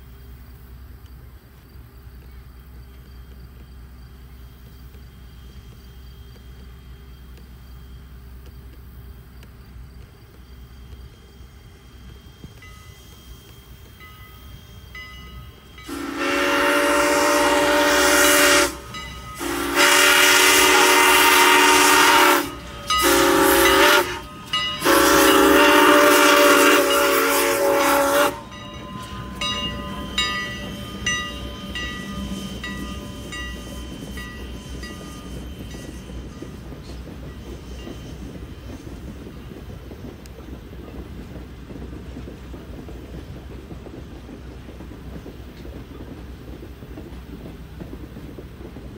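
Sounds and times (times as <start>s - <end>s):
train wheels clattering over rail joints: 0.1s - 48.9s
locomotive bell ringing: 13.9s - 16.2s, 18.7s - 39.5s
steam whistle blasts: 14.4s - 36.5s.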